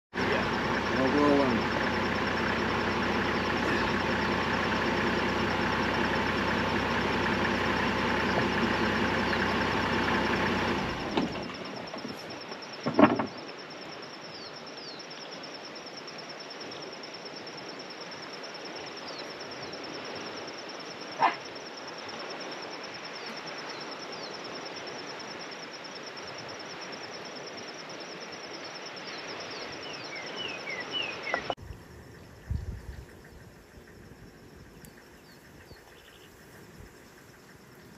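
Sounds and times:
vehicle engine running: 0.1s - 12.8s, 30.8s - 37.9s
high insect drone: 0.2s - 37.9s
bird chirps: 29.1s - 31.6s, 34.6s - 37.9s.

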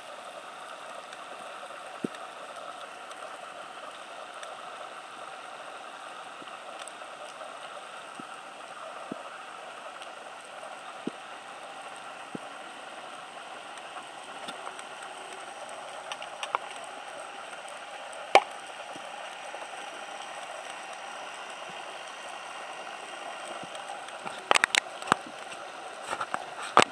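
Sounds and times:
faint clicks: 0.2s - 26.9s.

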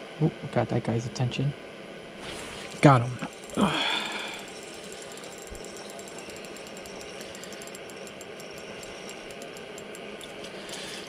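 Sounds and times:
propane heater hissing: 1.1s - 11.0s
faint rapid ticking: 2.6s - 11.0s.

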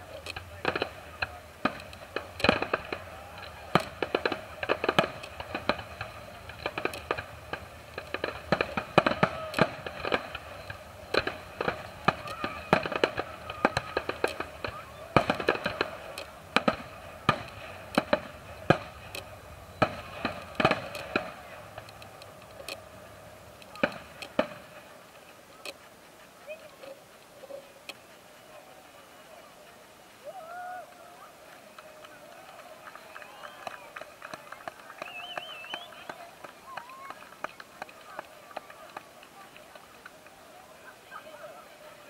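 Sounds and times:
fireworks bursting with bangs: 0.0s - 30.3s.

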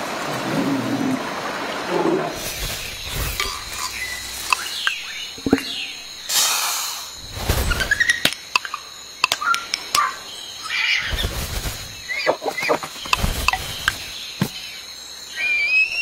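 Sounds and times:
rustling: 2.3s - 6.2s, 7.2s - 8.1s, 11.0s - 14.6s.

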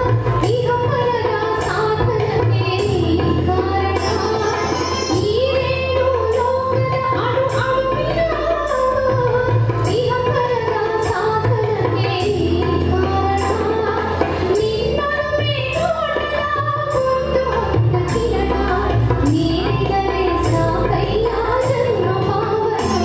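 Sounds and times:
backing track: 0.0s - 23.0s
woman singing: 0.0s - 23.0s
percussion stroke: 1.6s - 6.6s, 22.6s - 23.0s.

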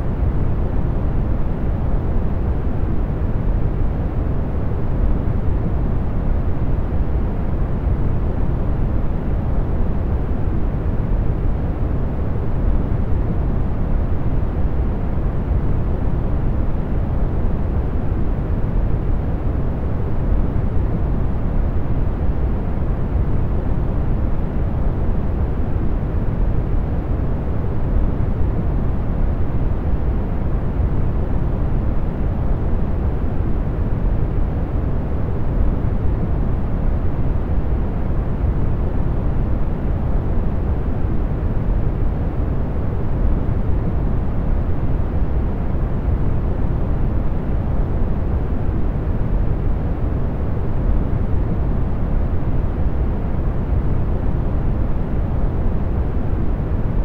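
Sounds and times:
industrial fans blowing: 0.0s - 57.0s.

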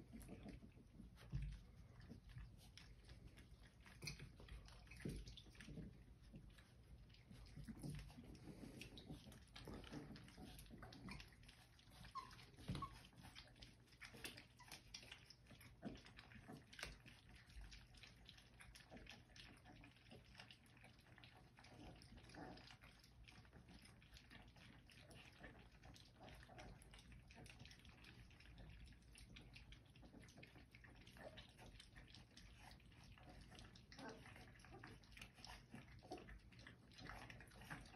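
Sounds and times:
puppies licking and eating: 0.0s - 37.9s
puppy whimpers: 10.2s - 13.6s.

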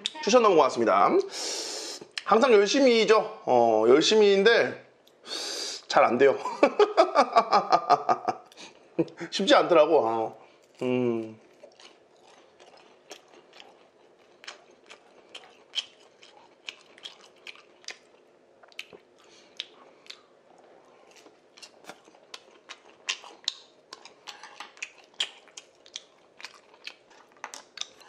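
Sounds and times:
close chewing: 10.6s - 28.0s.

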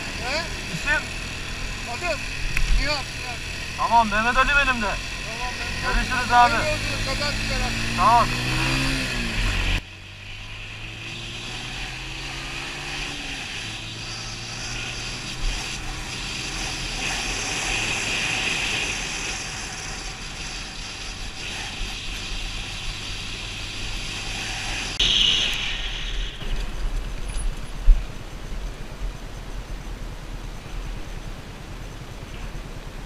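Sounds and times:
motorcycle engine running: 0.0s - 25.0s
wind and road noise: 0.0s - 33.0s.

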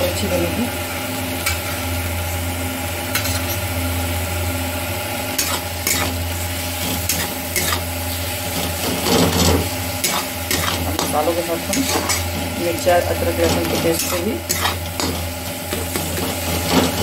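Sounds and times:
food sizzling in oil: 0.0s - 17.0s
metal spatula scraping pan: 3.1s - 3.6s, 5.4s - 17.0s.

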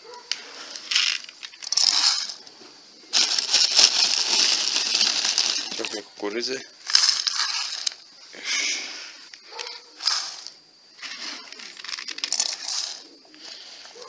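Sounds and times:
plastic bag crinkling: 0.8s - 2.4s, 3.1s - 6.2s, 11.4s - 13.1s
corn kernels rattling into bowl: 0.9s - 2.4s, 3.1s - 6.1s, 11.3s - 13.1s.

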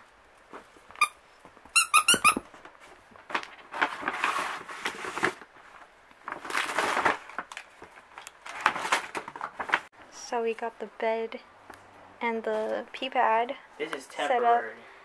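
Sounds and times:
puppy scuffling with toys: 0.3s - 9.9s
squeaky plush toy squeaking: 1.0s - 2.4s.

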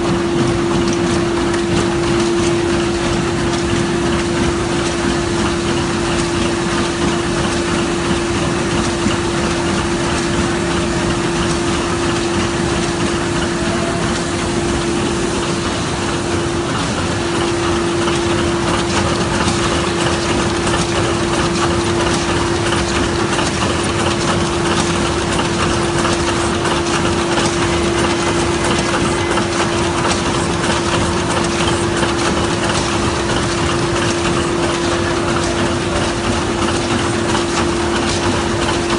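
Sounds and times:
machine clattering: 0.0s - 38.9s
machine hum: 0.0s - 38.9s.

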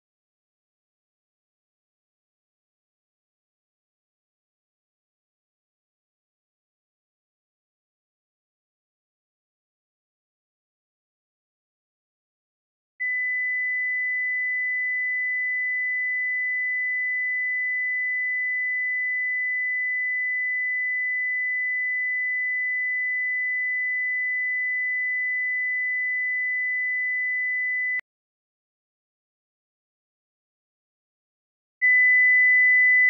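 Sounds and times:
sine wave test tone: 13.0s - 28.1s, 31.8s - 33.0s.

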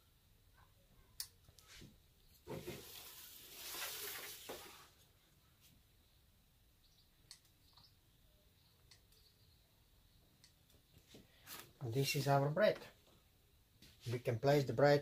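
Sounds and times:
paper rustling and scraping: 2.4s - 5.0s.

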